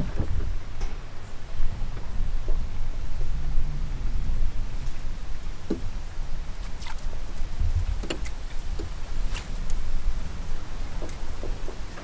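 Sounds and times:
wind buffeting microphone: 0.0 - 12.0
small splashes: 4.8 - 10.0.

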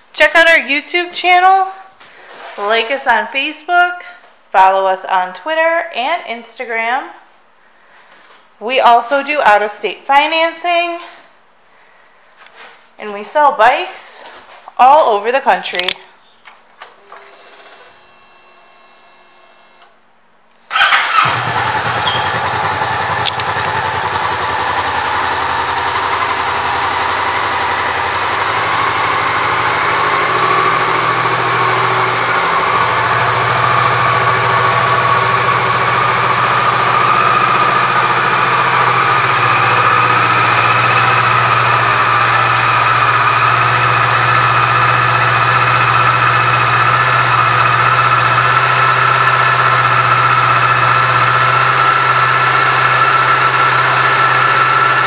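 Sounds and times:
motorcycle engine starting and idling: 16.7 - 18.0, 20.7 - 55.0
faint ignition hum: 20.7 - 55.0.

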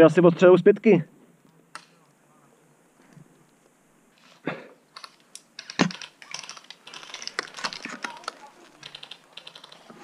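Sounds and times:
sharp clicks and rattles: 4.9 - 10.0.

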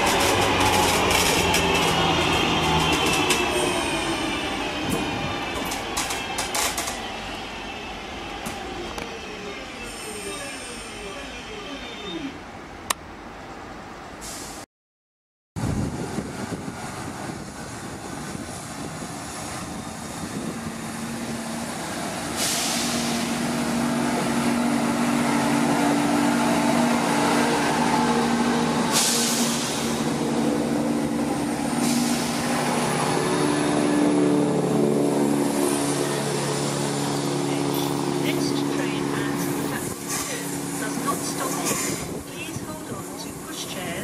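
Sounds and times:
diesel train engines humming: 0.0 - 14.6, 15.7 - 44.0
air brake hisses: 14.2 - 14.6, 22.4 - 23.3, 28.9 - 29.9.

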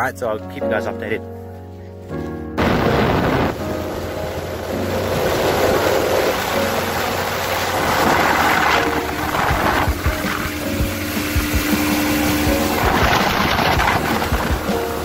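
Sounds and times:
outboard motor running: 2.6 - 15.0
wind and spray hissing: 2.6 - 15.0.

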